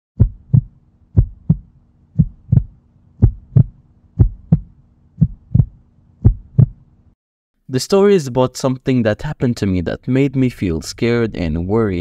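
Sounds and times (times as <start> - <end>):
heartbeat thumps: 0.2 - 6.8.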